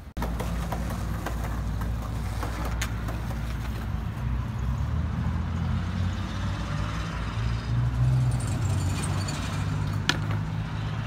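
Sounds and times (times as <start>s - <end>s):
skateboard wheels rolling on asphalt: 0.0s - 6.4s, 8.0s - 11.0s
road traffic: 0.0s - 11.0s.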